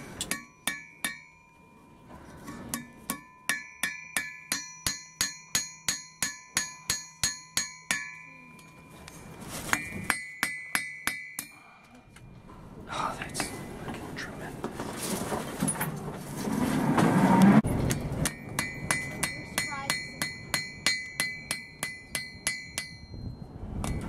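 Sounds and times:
hammer striking steel on anvil: 0:00.0 - 0:01.8, 0:02.4 - 0:12.3, 0:17.8 - 0:24.0.

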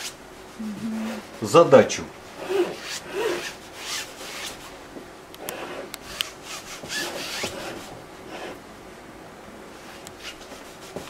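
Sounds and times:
paint brush rubbing on canvas: 0:02.4 - 0:04.7, 0:05.5 - 0:08.6, 0:09.8 - 0:11.0.

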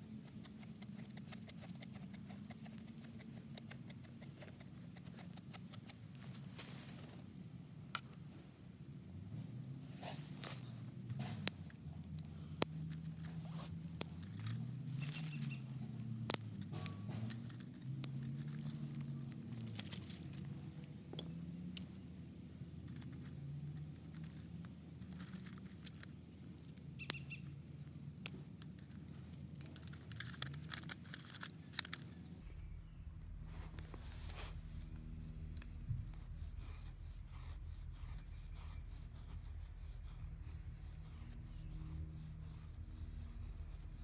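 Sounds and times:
low wavering hum: 0:31.7 - 0:44.0.

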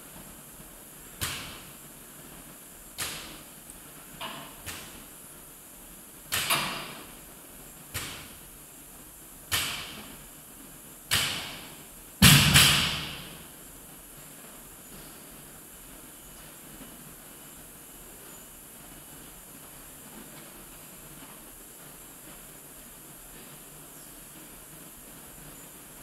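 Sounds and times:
barbell thudding on rubber floor: 0:12.2 - 0:13.4
loud heavy bangs: 0:12.2 - 0:13.4.

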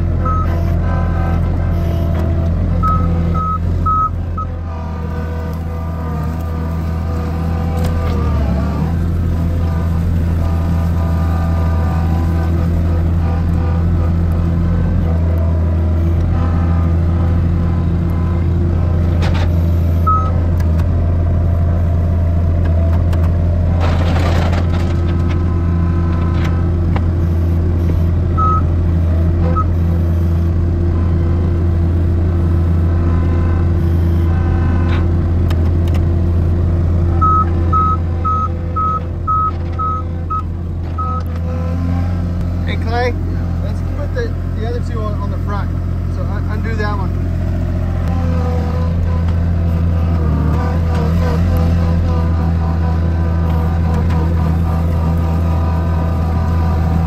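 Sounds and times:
loader diesel engine running: 0:00.0 - 0:57.0
reversing alarm beeping: 0:00.2 - 0:00.5, 0:02.8 - 0:04.5, 0:27.2 - 0:28.7, 0:37.2 - 0:41.3.

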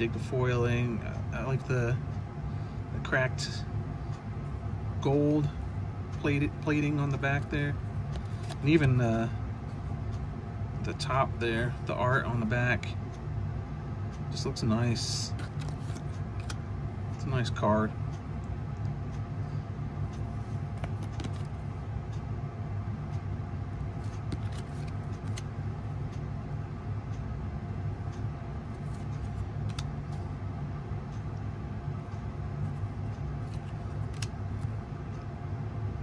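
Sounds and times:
steady low hum: 0:00.0 - 0:36.0
cards rustling being shuffled: 0:06.2 - 0:09.3, 0:15.3 - 0:16.6, 0:20.2 - 0:21.6, 0:23.9 - 0:25.5, 0:28.6 - 0:30.3, 0:32.6 - 0:34.8.

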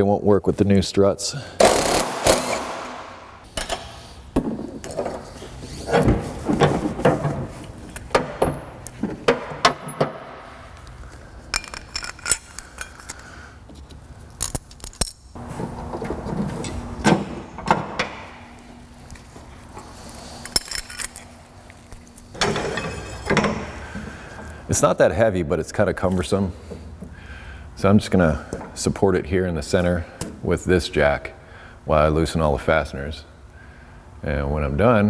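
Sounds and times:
metal tools clinking and rattling: 0:11.5 - 0:13.3, 0:14.4 - 0:15.4, 0:20.4 - 0:21.4, 0:22.4 - 0:23.7.

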